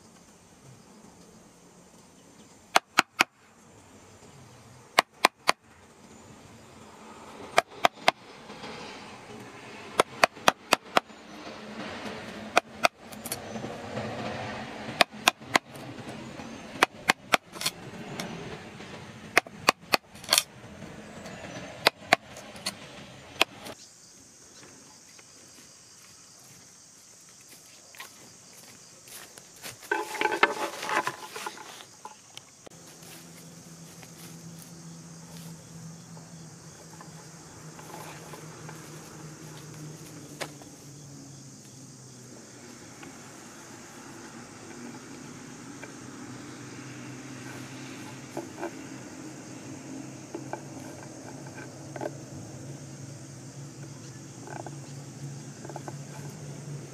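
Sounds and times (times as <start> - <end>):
high insect buzz: 0.0 - 56.9
tool striking wood: 2.7 - 3.3, 5.0 - 5.6, 10.0 - 11.1, 15.0 - 15.8
rustling: 27.6 - 35.7.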